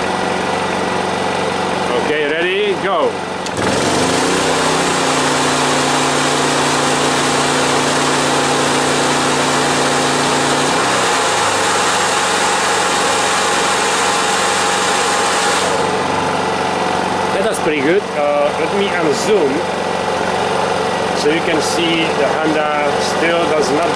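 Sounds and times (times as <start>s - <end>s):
generator engine running: 0.0s - 23.9s
hair dryer blowing: 3.4s - 17.4s.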